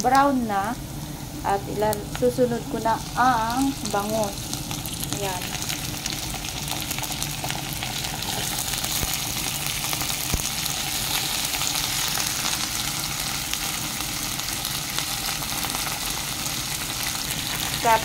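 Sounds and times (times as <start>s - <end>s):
fish sizzling in hot oil: 0.1s - 18.0s.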